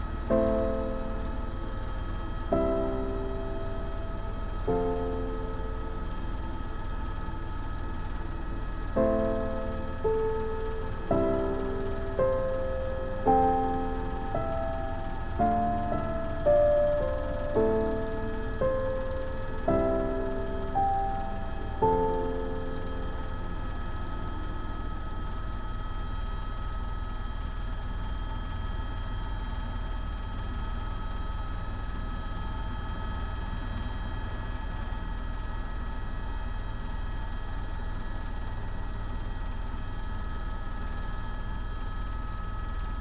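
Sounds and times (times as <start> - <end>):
helicopter rotor and engine rumble: 0.0 - 43.0
turbine whine: 0.0 - 43.0
piano note: 9.0 - 23.4.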